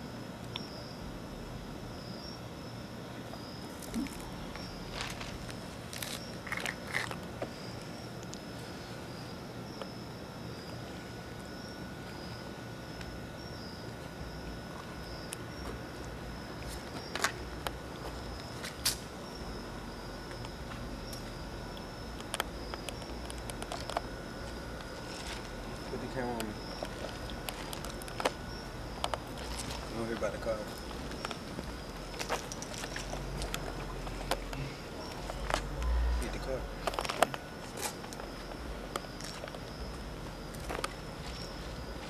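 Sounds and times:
crickets chirping: 0.0 - 42.0.

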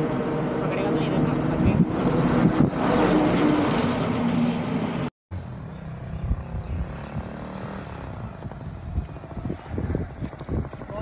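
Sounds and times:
lorry passing on highway: 0.0 - 11.0
motorcycle engine at low speed: 5.3 - 11.0.

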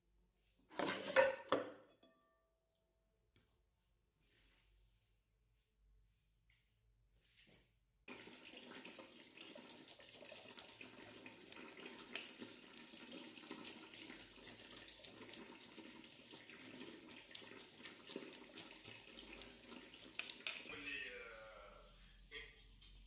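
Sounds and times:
tap water running into sink: 8.1 - 20.7
wet splashes and clicks: 13.5 - 20.7.

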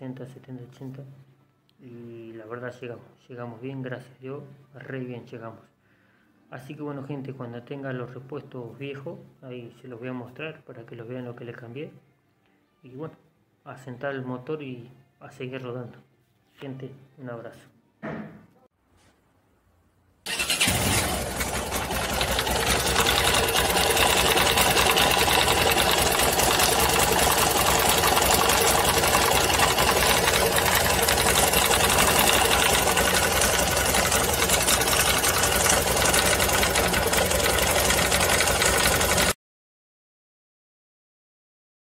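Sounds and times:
motorcycle engine running: 20.3 - 39.4.

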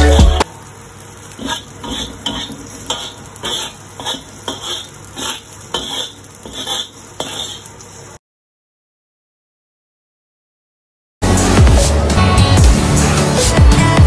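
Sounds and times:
spatula scraping a wok: 1.2 - 8.2.

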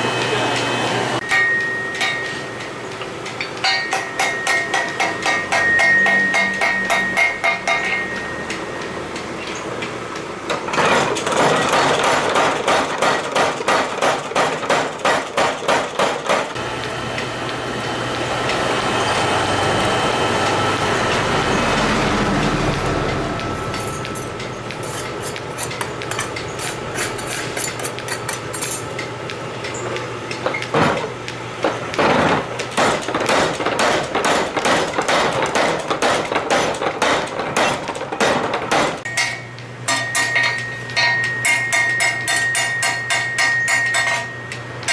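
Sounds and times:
power hammer pounding steel: 3.5 - 8.9, 10.5 - 16.9, 30.3 - 44.9
forge noise: 16.5 - 27.1.

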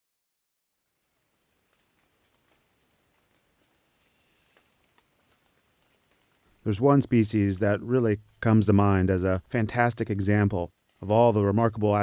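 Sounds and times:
insect chorus drone: 0.6 - 12.0
faint ticks: 1.3 - 6.7.

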